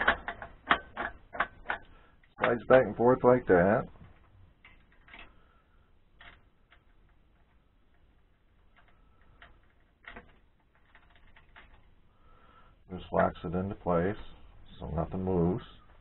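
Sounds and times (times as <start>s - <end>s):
faint metal clicks and taps: 0.0s - 2.8s, 3.9s - 5.5s, 6.1s - 12.0s.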